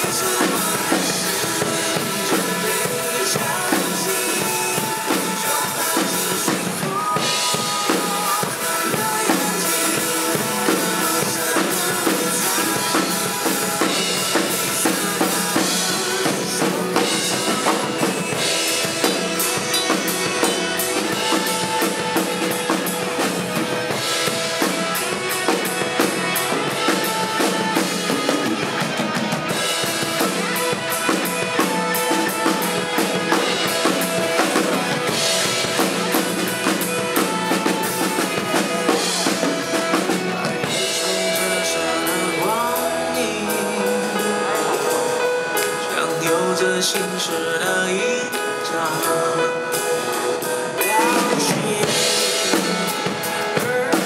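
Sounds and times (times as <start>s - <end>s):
acoustic drum kit: 0.0s - 54.0s
pop backing track: 0.0s - 54.0s.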